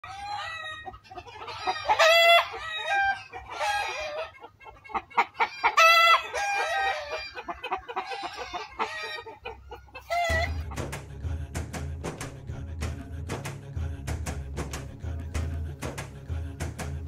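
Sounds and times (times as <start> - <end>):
chickens clucking: 0.0 - 17.0
music: 10.2 - 17.0.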